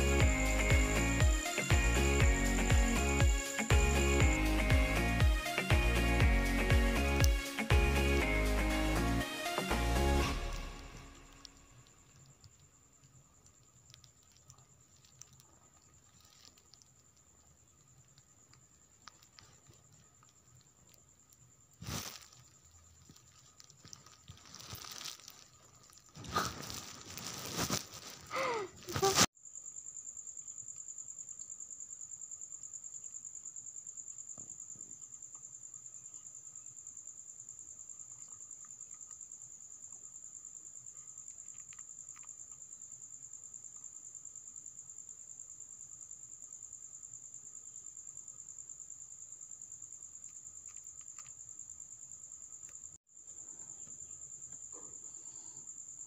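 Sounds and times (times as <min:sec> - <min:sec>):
high pulsing insect trill: 0:00.0 - 0:56.0
close rustling and handling: 0:13.6 - 0:17.1, 0:21.8 - 0:29.3.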